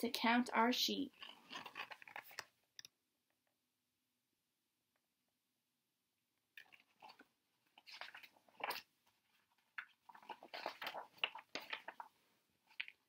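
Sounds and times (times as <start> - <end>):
book pages rustling: 1.1 - 2.6, 6.6 - 13.0.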